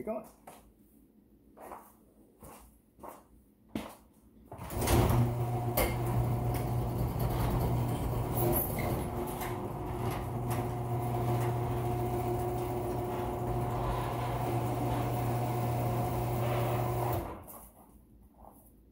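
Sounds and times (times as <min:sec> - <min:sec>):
garage door motor hum: 0:04.5 - 0:17.6
garage door clicks and rattles: 0:04.6 - 0:17.5.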